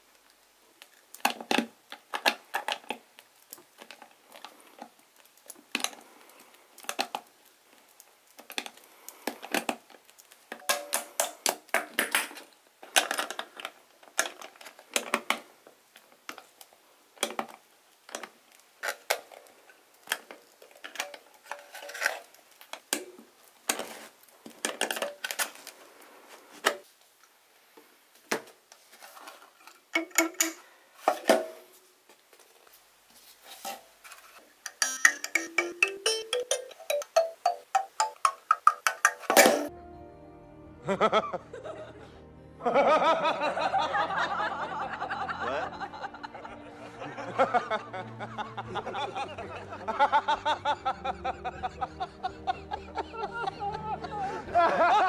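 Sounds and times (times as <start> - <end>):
kalimba tines clicking and scraping: 34.6 - 39.7.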